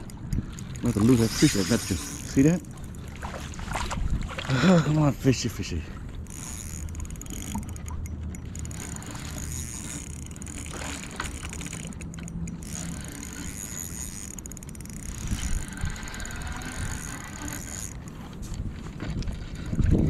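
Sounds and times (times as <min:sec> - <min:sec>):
fishing reel clicking: 0:00.0 - 0:03.2, 0:06.2 - 0:18.3.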